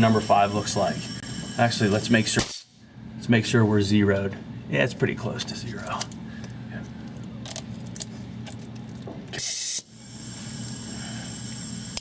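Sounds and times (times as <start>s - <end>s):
air hissing with high whistling: 0.0s - 2.8s, 9.4s - 12.0s
low steady hum: 0.0s - 12.0s
loud blast of compressed air: 9.4s - 12.0s.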